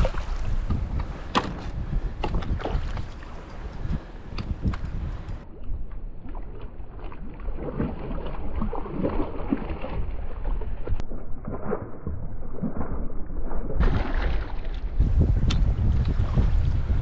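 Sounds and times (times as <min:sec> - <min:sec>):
wind rumble: 0:00.0 - 0:17.0
fish splashing in water: 0:06.2 - 0:15.0.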